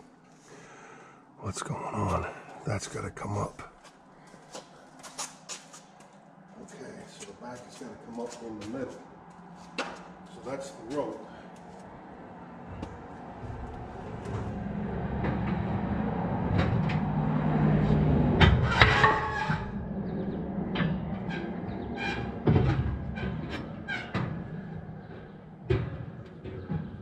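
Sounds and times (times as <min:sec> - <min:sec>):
metal knocks and clanks: 0:12.8 - 0:27.0
metallic squeal: 0:18.6 - 0:20.4.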